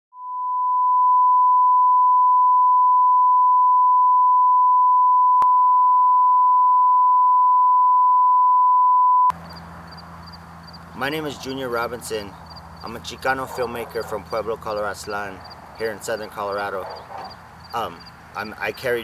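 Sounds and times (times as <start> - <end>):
sine test tone: 0.1 - 9.4.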